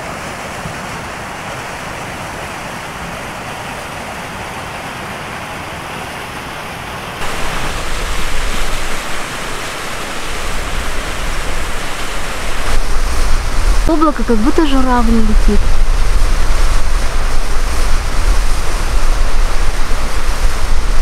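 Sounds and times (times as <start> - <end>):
low rumble: 12.7 - 21.0.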